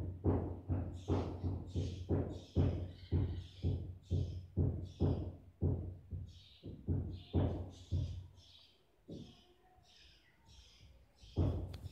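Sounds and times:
deep thumps: 11.4 - 11.9.

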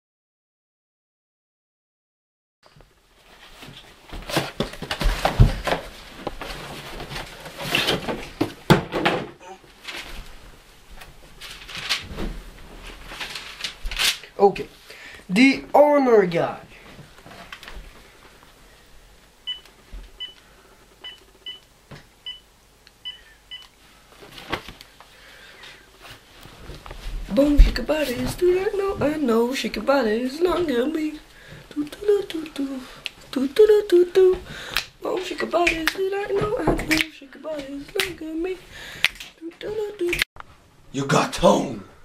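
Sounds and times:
dictionary handling rustles: 3.2 - 8.7, 9.7 - 14.4, 24.1 - 25.0.

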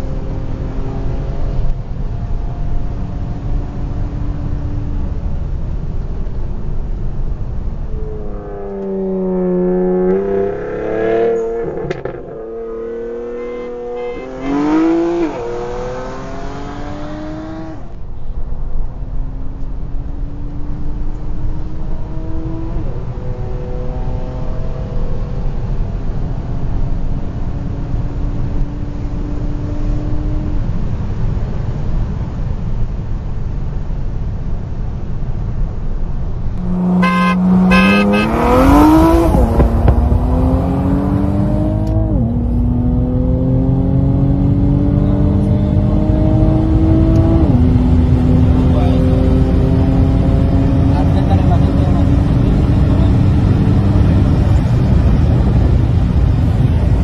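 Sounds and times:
car engine accelerating: 0.0 - 18.1, 19.4 - 31.7, 36.3 - 57.0
another car engine tone: 0.0 - 18.3, 36.5 - 57.0
road and wind noise: 0.0 - 57.0.

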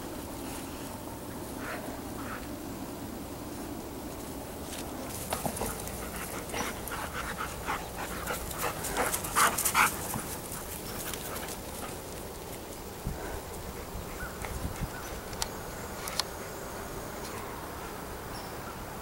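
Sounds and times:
dogs panting: 5.1 - 12.6.

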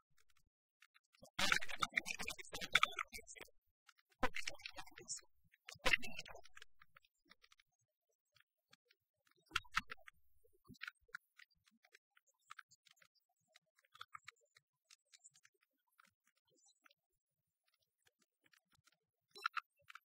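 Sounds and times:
faint clicks and ticks: 0.0 - 20.0.

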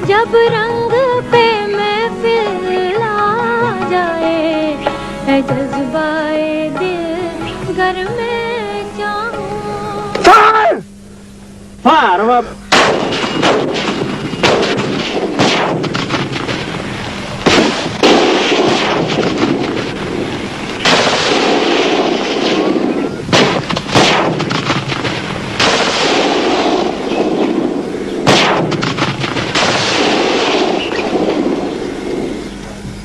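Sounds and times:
artillery blasts: 12.7 - 32.4
continuous din of firing: 12.7 - 32.7.

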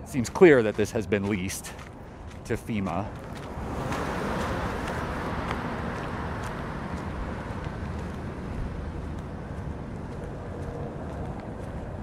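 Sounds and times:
car passing by: 3.0 - 12.0.

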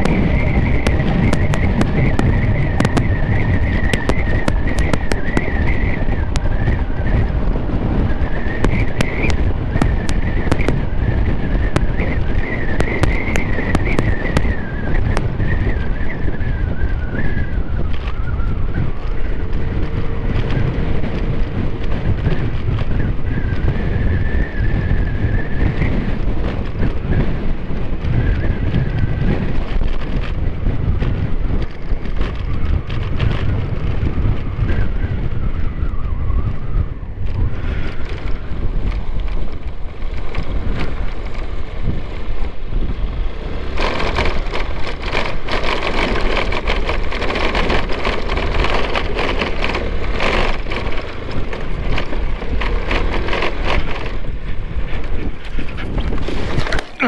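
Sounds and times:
sharp ticks: 0.0 - 6.5, 8.5 - 10.8
high whine: 0.0 - 20.7
scooter engine running: 0.0 - 35.6, 36.6 - 57.0
wind buffeting microphone: 0.0 - 57.0.

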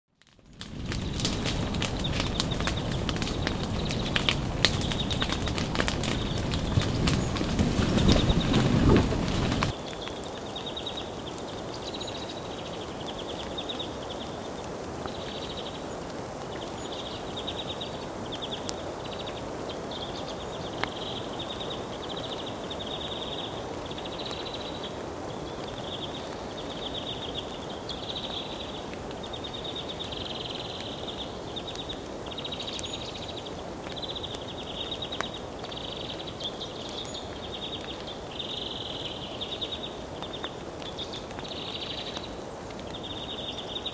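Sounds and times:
faint clicks: 0.2 - 10.3.

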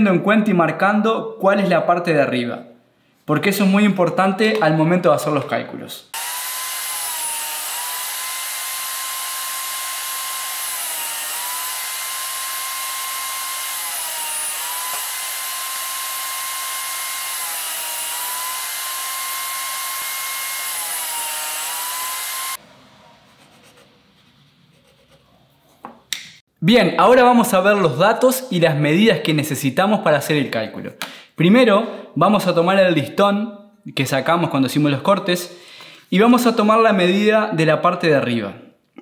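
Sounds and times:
table saw cutting plywood: 6.1 - 25.2.

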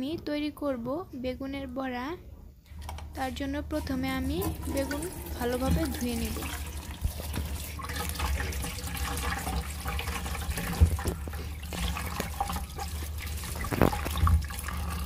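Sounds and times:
tap water running into a bowl: 2.8 - 15.0
vegetables rubbed and rinsed: 3.2 - 15.0.

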